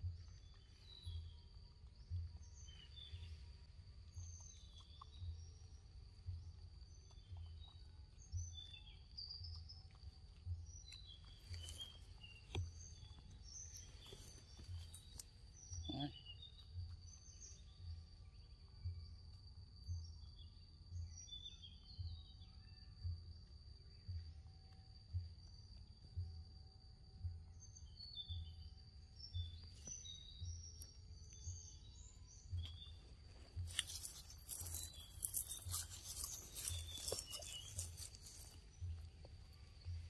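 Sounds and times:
bird chirps: 0.0 - 19.0, 19.8 - 23.1, 27.5 - 40.0
soft low pulse: 0.0 - 34.8, 37.7 - 40.0
high insect drone: 30.0 - 40.0.

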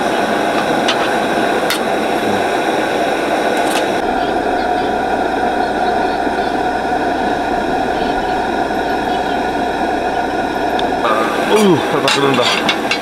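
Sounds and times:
constant tone: 0.0 - 13.0
cooking burner hissing: 0.0 - 13.0.

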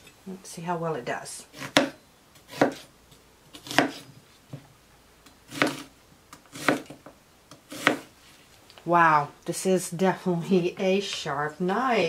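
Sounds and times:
knife slicing onion on board: 1.5 - 2.9, 3.5 - 4.1, 5.5 - 8.1.

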